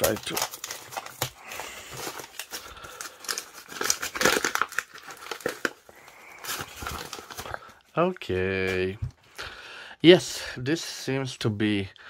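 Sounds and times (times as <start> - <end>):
wrapping paper crinkling: 0.0 - 8.9.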